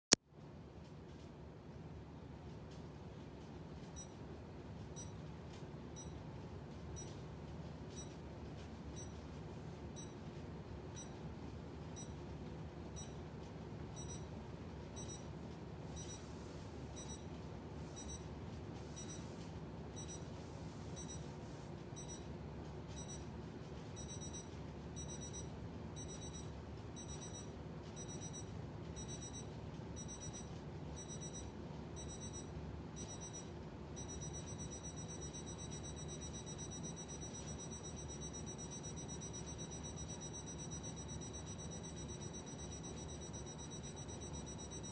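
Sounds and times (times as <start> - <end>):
steady low hum: 0.3 - 44.9
high-pitched electronic beeps: 14.0 - 14.2, 15.0 - 15.3, 16.0 - 16.3, 17.0 - 17.2, 18.0 - 18.2, 19.0 - 19.3, 20.0 - 20.3, 24.0 - 44.9.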